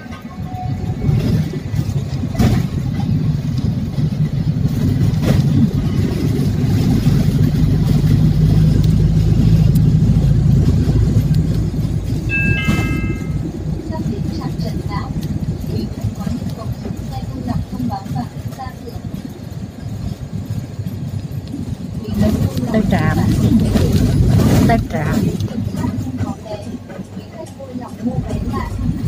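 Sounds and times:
bus engine drone: 0.0s - 29.0s
road noise: 0.0s - 29.0s
high beep: 12.3s - 13.5s.

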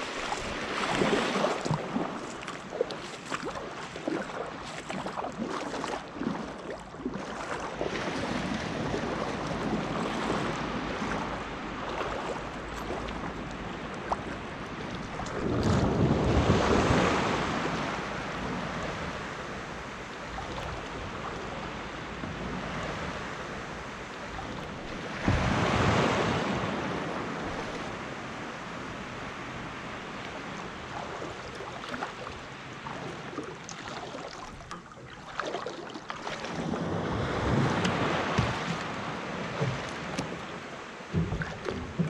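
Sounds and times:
splashing from wading: 0.0s - 14.4s, 30.9s - 40.6s
small waves lapping: 0.0s - 42.0s
wind buffeting microphone: 7.7s - 29.3s.

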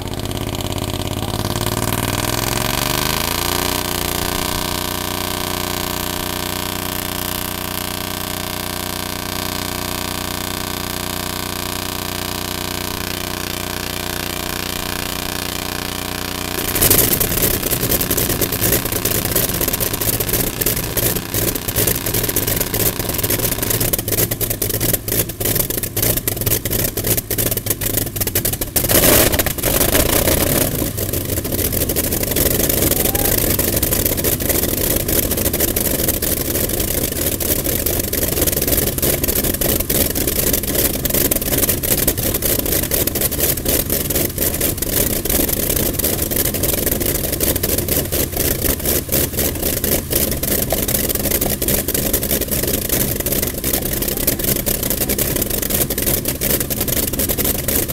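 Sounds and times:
radial aircraft engine running: 16.4s - 57.9s.

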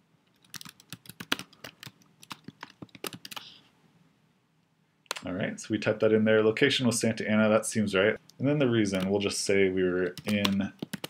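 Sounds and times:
typing on keyboard: 0.4s - 3.5s, 10.0s - 11.0s.

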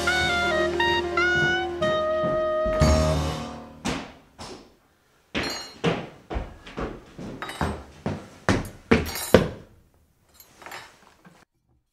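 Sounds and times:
sharp knocks: 2.7s - 4.7s.

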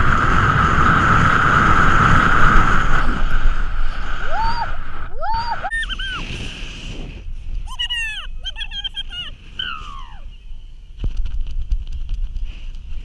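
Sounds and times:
wind rushing over microphone: 0.0s - 8.4s
person crying out: 5.2s - 6.2s, 7.7s - 10.2s.

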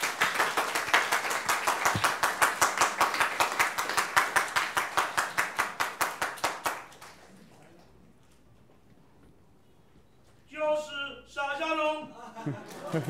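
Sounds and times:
quick even hand claps: 0.0s - 7.0s
crowd clapping: 0.0s - 7.9s.

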